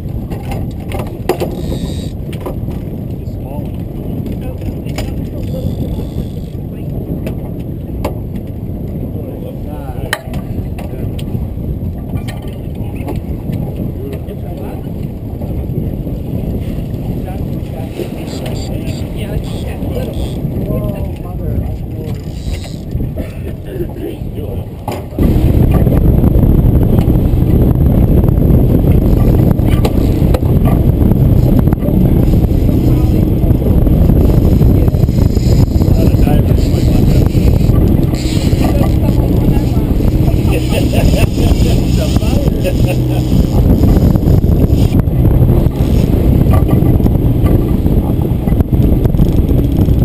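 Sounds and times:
boat engine rumble: 0.0 - 50.0
outboard motor running: 0.0 - 50.0.

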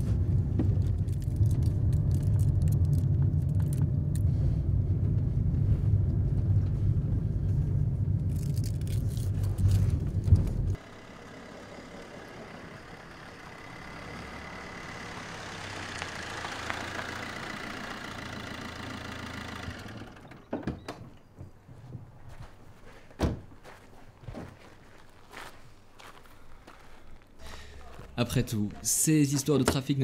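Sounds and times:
car engine running: 0.0 - 20.5.

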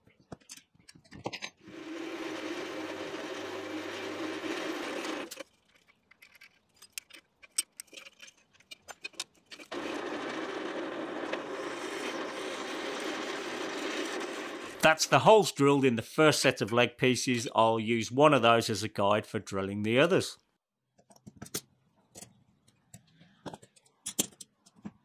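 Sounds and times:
drill press cutting metal: 1.6 - 5.4, 9.6 - 14.8.

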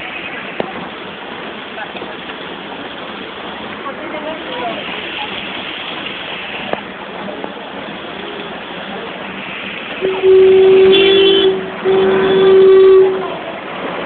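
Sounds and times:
vehicle horn honking: 10.0 - 13.4.

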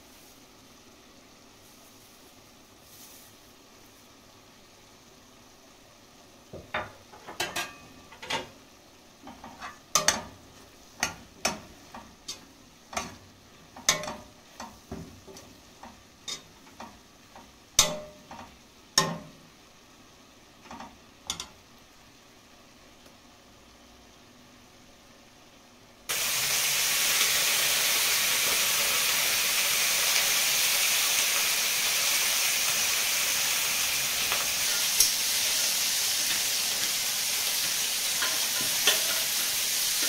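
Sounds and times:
metal utensil knocking on a pan: 13.8 - 14.3, 17.8 - 19.4.

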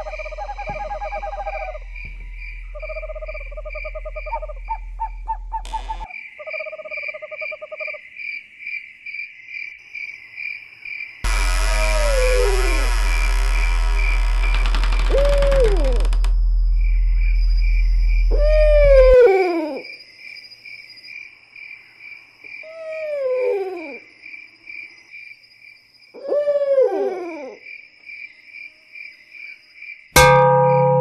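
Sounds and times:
low drone: 0.0 - 6.0, 11.3 - 19.2
owl hooting: 0.0 - 8.0, 15.0 - 16.1, 18.2 - 20.0, 22.6 - 24.0, 26.2 - 27.7
crickets chirping: 0.0 - 31.0.

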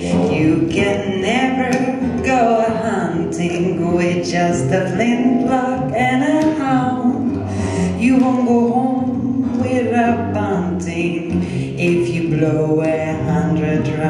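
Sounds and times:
double bass: 0.0 - 14.0
woman singing into a microphone: 0.0 - 14.0.

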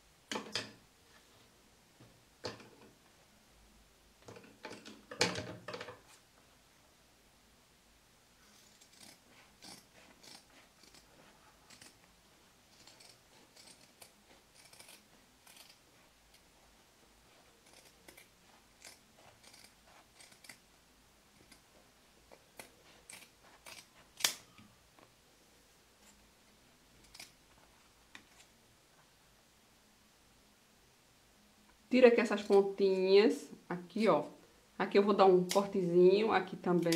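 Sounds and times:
scissors snipping fabric: 8.6 - 11.1, 11.7 - 12.0, 12.8 - 15.8, 17.6 - 20.6, 22.3 - 24.4.

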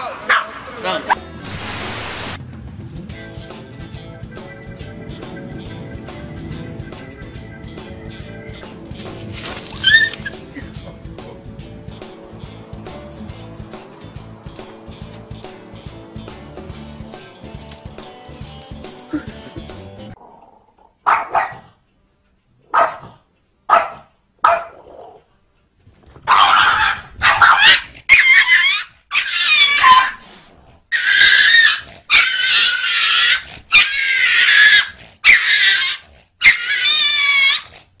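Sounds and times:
dog yipping: 9.5 - 10.7, 21.1 - 21.6, 22.7 - 23.1, 23.7 - 25.2, 26.2 - 30.2, 30.9 - 37.8
dog high wavering calls: 9.6 - 10.7, 30.9 - 37.7.

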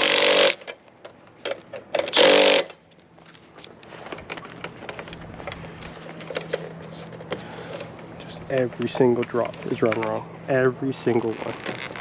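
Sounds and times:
impact driver burst: 0.0 - 0.7, 2.0 - 2.8.

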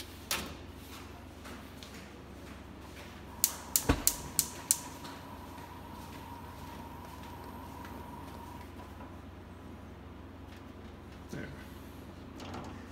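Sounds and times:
spark igniter clicking: 3.4 - 5.3.

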